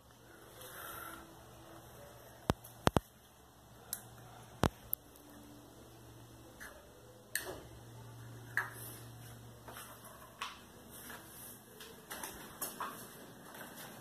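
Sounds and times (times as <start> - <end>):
fan ticks and clicks: 2.4 - 3.1, 3.9 - 5.1.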